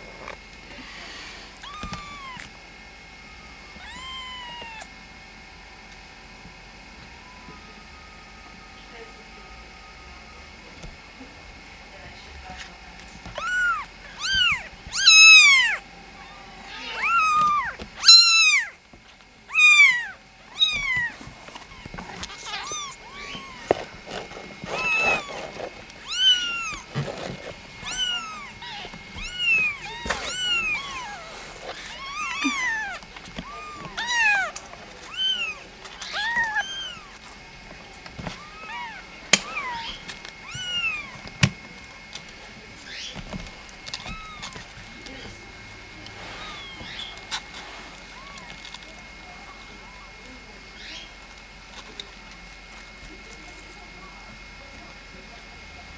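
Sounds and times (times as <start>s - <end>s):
kitten meowing: 1.6s - 2.5s, 3.8s - 4.9s, 13.3s - 18.8s, 19.5s - 21.1s, 21.7s - 23.8s, 24.6s - 26.9s, 27.8s - 37.1s, 39.6s - 41.1s, 44.0s - 44.6s, 46.4s - 47.1s.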